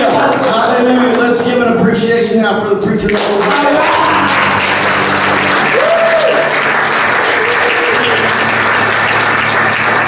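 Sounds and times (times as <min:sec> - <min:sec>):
congregation applauding: 0:00.0 - 0:01.3, 0:03.0 - 0:10.0
band's held notes: 0:03.6 - 0:10.0.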